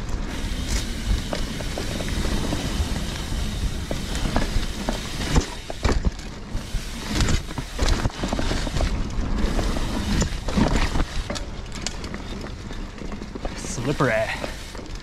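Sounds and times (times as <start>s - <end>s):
bike rattling and knocking: 0.0s - 15.0s.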